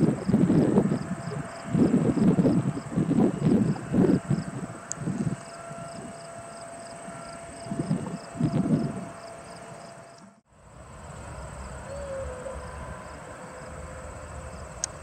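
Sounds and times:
insects trilling: 0.0 - 10.2
jet engines rumbling: 0.0 - 15.0.

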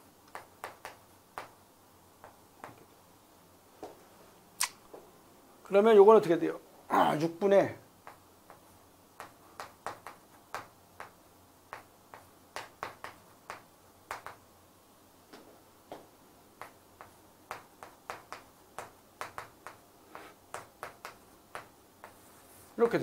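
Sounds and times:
chalk tapping on chalkboard: 0.3 - 1.6, 9.2 - 14.4, 16.6 - 22.4.

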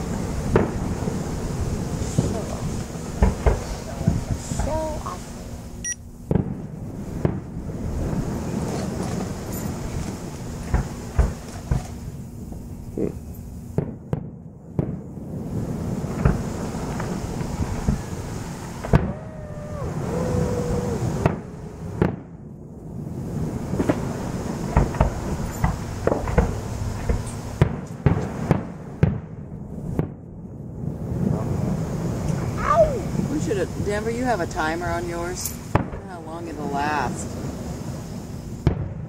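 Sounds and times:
background rumble: 0.0 - 39.0
fireworks bangs and crackles: 0.0 - 39.0.

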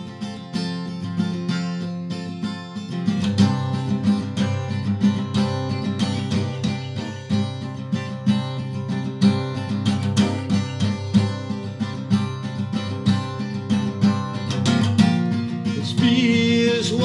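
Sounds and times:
acoustic guitar strumming: 0.0 - 17.0
man singing: 15.6 - 17.0.

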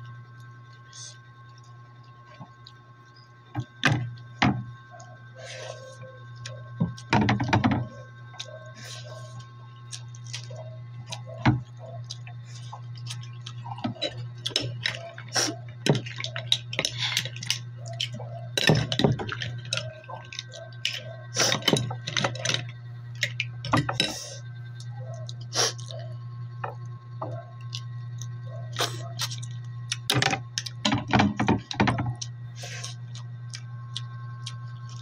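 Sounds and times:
steady low hum: 0.0 - 35.0
mouth noises from eating: 24.2 - 26.2, 27.4 - 30.1.

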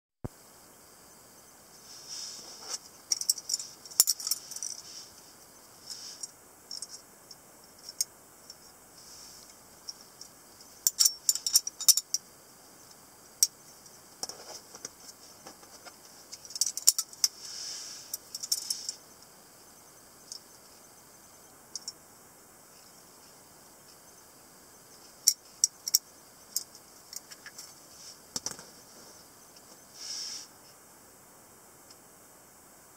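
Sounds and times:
metal knife handles clicking: 10.9 - 12.2.

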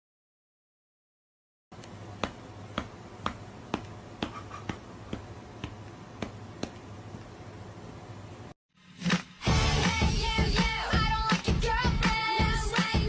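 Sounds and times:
steady low hum: 1.8 - 8.6.

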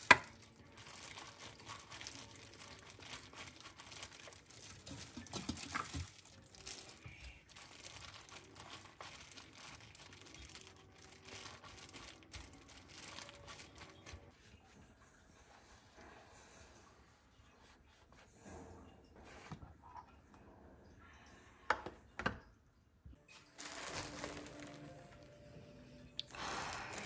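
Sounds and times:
wet handling noises: 0.0 - 14.5, 23.3 - 25.3, 26.2 - 27.0
plastic glove crinkling: 0.0 - 14.6, 23.3 - 25.4, 26.2 - 27.0.

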